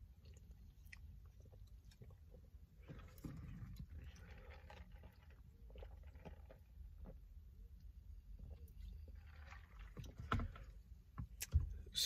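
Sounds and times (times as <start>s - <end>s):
swallowing: 0.0s - 6.7s
low steady hum: 0.0s - 12.0s.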